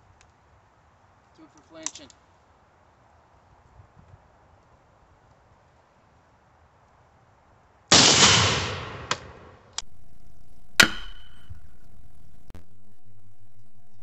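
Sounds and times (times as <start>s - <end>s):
bullet striking steel plate: 7.9s - 12.6s
gunshot echoing: 7.9s - 13.6s.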